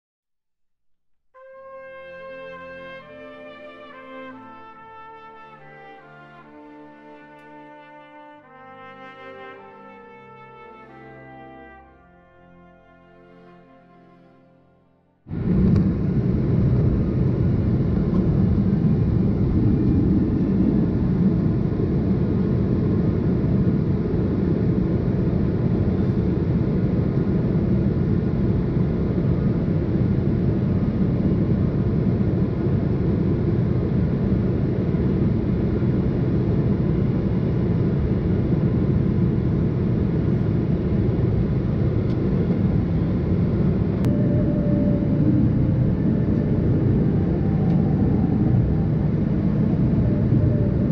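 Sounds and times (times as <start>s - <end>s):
airliner cabin engine rumble: 15.3s - 50.9s.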